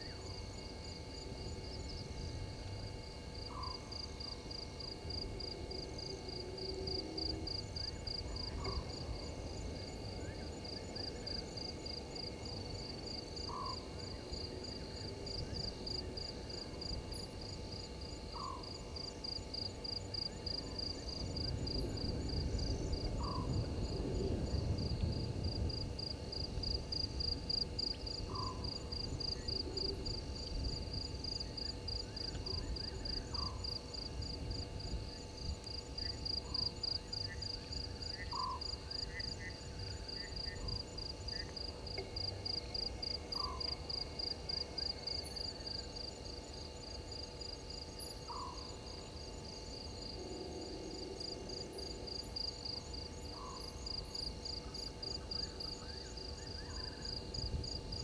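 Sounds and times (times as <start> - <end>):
insect chirping: 0.0 - 58.0
frogs calling: 3.4 - 4.0, 36.0 - 41.5.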